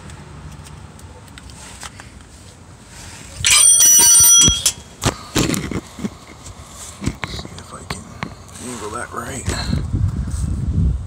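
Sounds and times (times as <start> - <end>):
steel tool clanging and ringing: 3.4 - 4.9.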